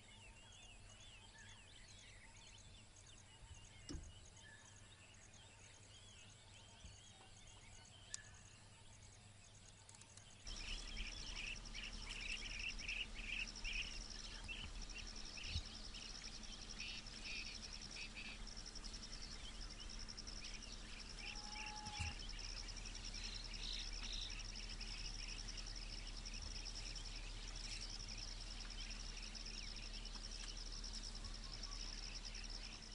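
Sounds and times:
bird chirps: 0:00.0 - 0:32.9
low steady hum: 0:00.0 - 0:32.9
high insect trill: 0:09.9 - 0:32.9.

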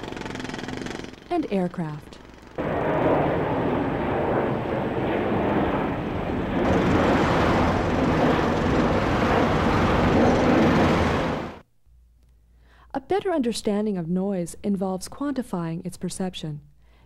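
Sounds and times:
jet airliner engine rush: 0:02.6 - 0:11.6
road traffic: 0:06.6 - 0:11.6.

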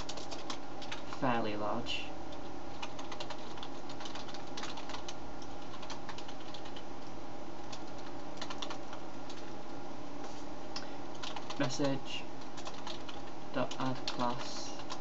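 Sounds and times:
typing on computer keyboard: 0:00.0 - 0:01.1, 0:02.7 - 0:09.5, 0:11.2 - 0:15.0
steady background hum: 0:00.0 - 0:15.0.

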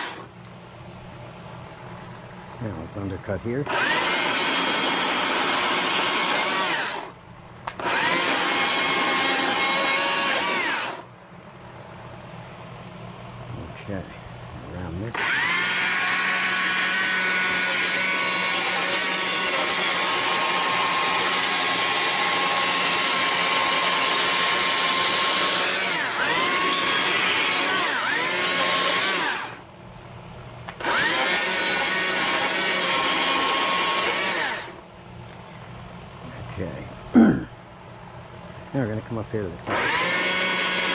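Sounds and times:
chainsaw cutting wood: 0:00.0 - 0:00.3, 0:03.7 - 0:11.1, 0:15.1 - 0:29.6, 0:30.7 - 0:34.8, 0:39.6 - 0:40.9.

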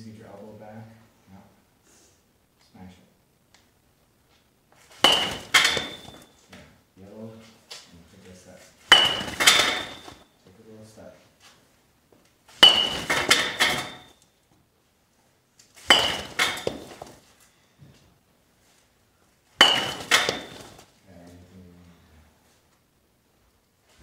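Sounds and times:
bat cracking a ball: 0:05.0 - 0:06.3, 0:08.9 - 0:10.2, 0:12.6 - 0:14.1, 0:15.8 - 0:17.2, 0:19.6 - 0:20.8
ball rattling in net: 0:05.0 - 0:06.4, 0:08.9 - 0:10.2, 0:12.6 - 0:14.2, 0:15.9 - 0:17.3, 0:19.6 - 0:20.9.

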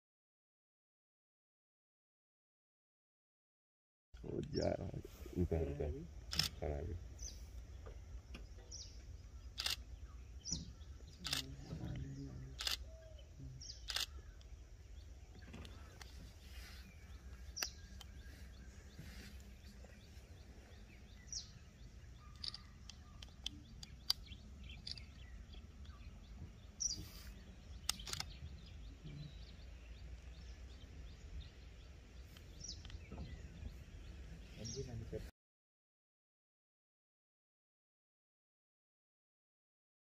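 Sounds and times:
low background rumble: 0:04.2 - 0:35.2
sharp clicks: 0:06.3 - 0:06.7, 0:09.5 - 0:09.9, 0:10.5 - 0:13.0, 0:13.8 - 0:14.5, 0:22.3 - 0:26.0, 0:27.8 - 0:28.5, 0:32.3 - 0:33.2
high bird chirps: 0:06.3 - 0:34.9.

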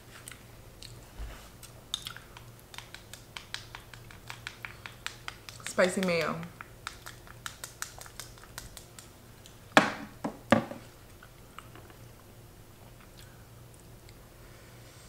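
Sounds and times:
knocks on table: 0:09.8 - 0:10.8.

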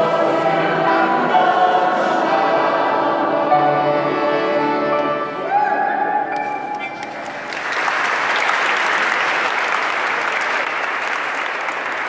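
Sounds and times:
music: 0:00.0 - 0:08.5
crowd applauding: 0:06.4 - 0:12.0.

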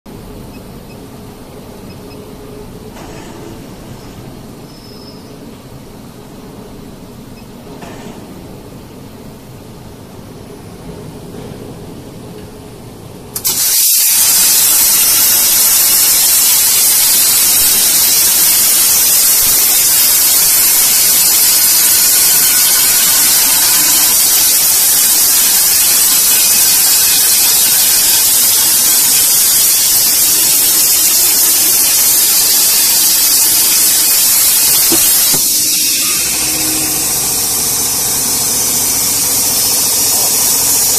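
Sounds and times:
low machine hum: 0:00.1 - 0:13.4, 0:32.0 - 0:40.9
quieter hiss: 0:13.3 - 0:40.9
plasma torch hissing: 0:13.4 - 0:40.9.

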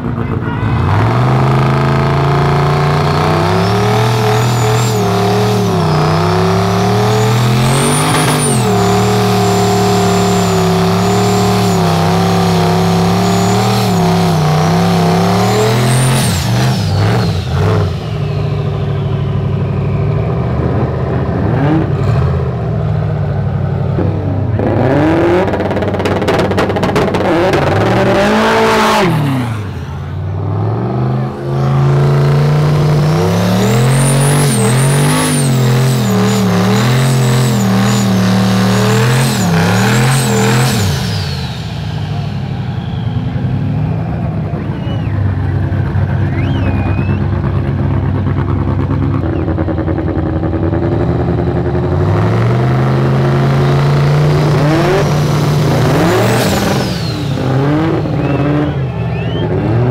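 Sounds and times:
car engine revving: 0:00.0 - 0:59.9
turbo whistle: 0:02.6 - 0:20.5, 0:33.0 - 0:47.6, 0:54.6 - 0:59.9.

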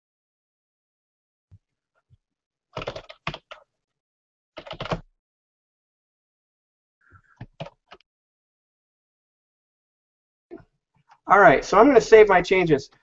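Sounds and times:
computer keyboard typing: 0:02.8 - 0:03.6, 0:04.6 - 0:05.0, 0:07.4 - 0:08.0.

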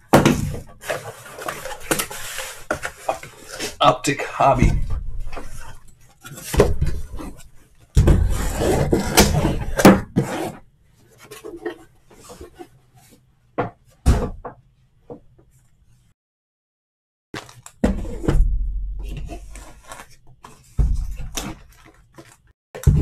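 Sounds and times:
cardboard and plastic wrap rustling: 0:00.1 - 0:13.2, 0:17.4 - 0:18.3, 0:19.0 - 0:22.5.

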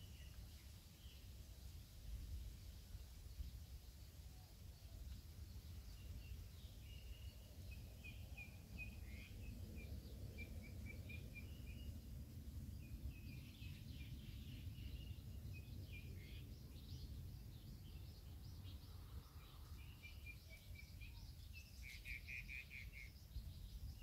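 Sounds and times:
birds chirping: 0:05.1 - 0:12.1, 0:12.7 - 0:24.0.

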